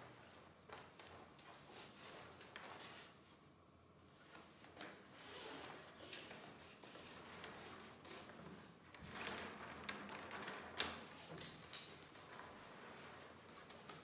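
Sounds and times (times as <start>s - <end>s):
plastic liner rustling and rubbing: 4.4s - 14.0s.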